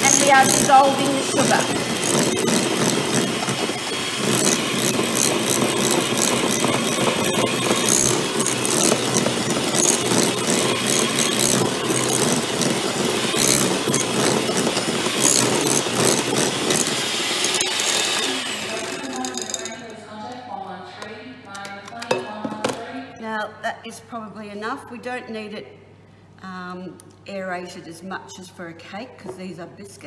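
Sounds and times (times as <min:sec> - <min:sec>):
electric mixer running: 0:00.0 - 0:19.9.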